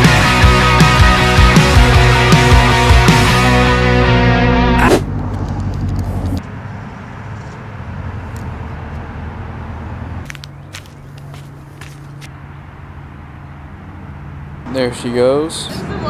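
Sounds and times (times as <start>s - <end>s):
rock music: 0.0s - 5.0s
parking lot ambience: 0.0s - 16.0s
low vehicle hum: 3.9s - 16.0s.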